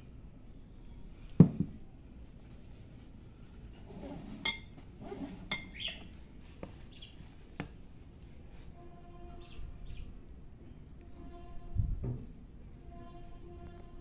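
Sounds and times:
spoon scraping ceramic dish: 3.9s - 5.9s.

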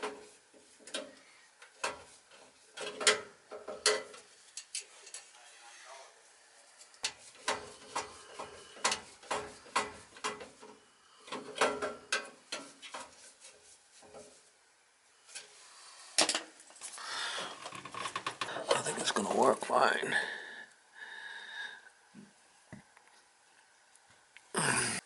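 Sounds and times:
clicks taps and knocks on metal: 0.8s - 2.1s, 2.8s - 5.2s, 7.0s - 13.1s.

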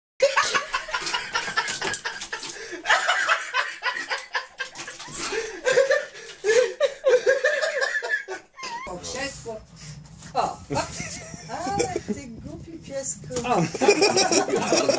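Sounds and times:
people laughing: 0.2s - 8.9s, 10.7s - 12.2s, 13.5s - 14.9s.

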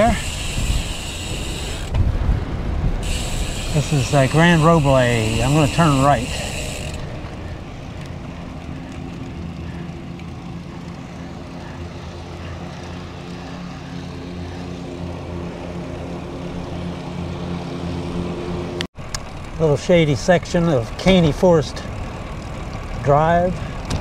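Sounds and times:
engine drone: 0.0s - 24.0s
wind and road noise: 0.0s - 24.0s.

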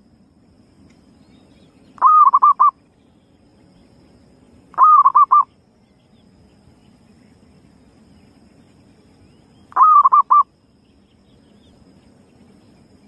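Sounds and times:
dove cooing: 2.0s - 2.8s, 4.8s - 5.5s, 9.7s - 10.5s.

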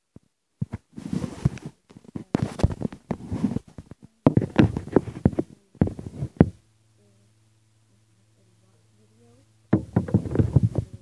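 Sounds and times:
microphone rubbing against clothing: 0.2s - 6.6s, 9.7s - 11.0s.

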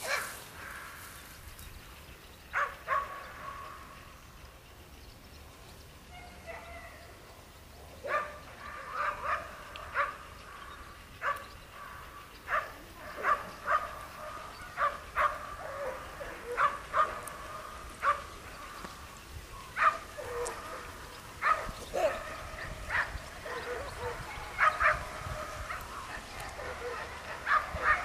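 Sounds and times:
dog barking and yelping: 2.6s - 3.6s, 11.2s - 17.4s, 19.8s - 28.0s.

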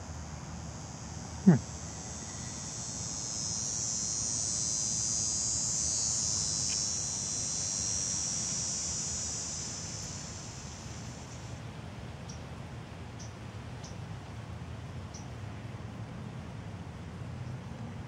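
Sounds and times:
insects trilling: 0.0s - 12.4s, 13.2s - 14.0s, 15.1s - 15.3s.

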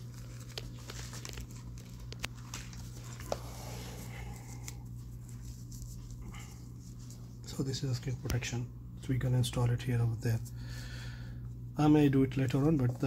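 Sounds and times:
plastic packaging crinkling: 0.0s - 6.2s.

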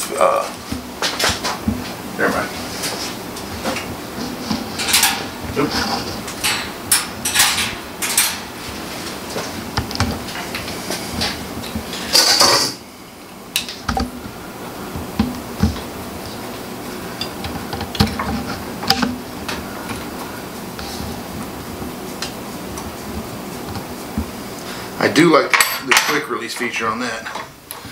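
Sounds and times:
metal clinks and knocks: 6.3s - 8.5s.

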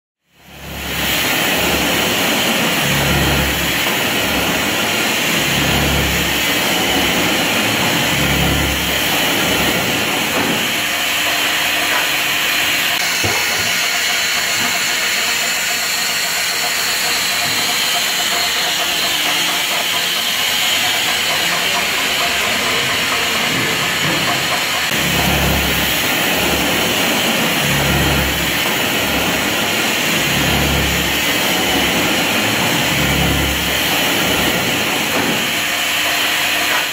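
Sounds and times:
machine hum: 0.4s - 36.9s
loud air hiss: 0.5s - 36.9s.

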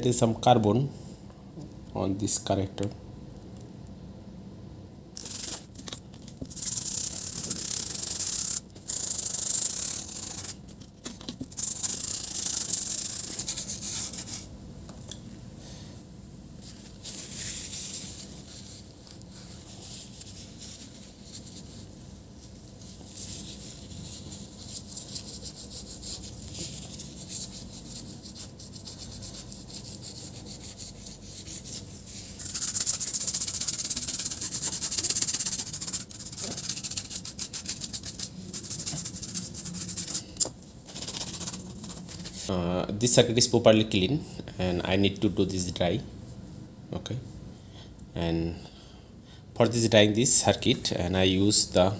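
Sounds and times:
brush scrubbing circuit board: 6.5s - 10.6s, 11.5s - 14.5s, 22.8s - 40.3s, 40.9s - 42.5s.

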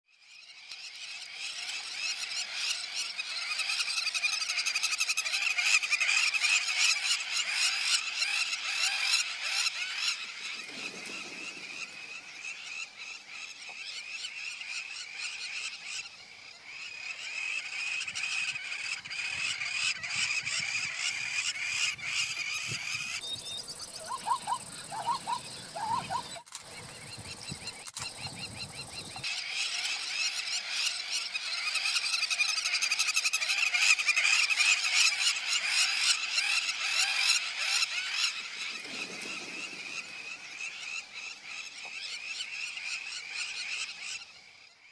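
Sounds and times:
flock of birds twittering: 0.1s - 44.9s
short low bird calls: 17.2s - 31.3s.

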